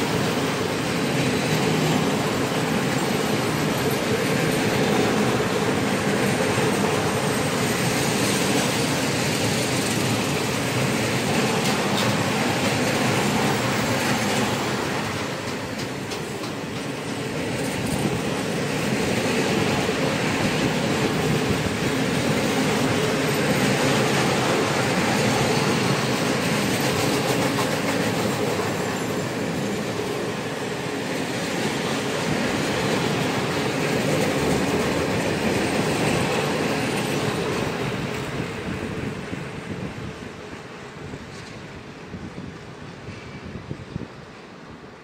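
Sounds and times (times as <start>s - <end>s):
freight train wheels rumbling: 0.0s - 45.0s.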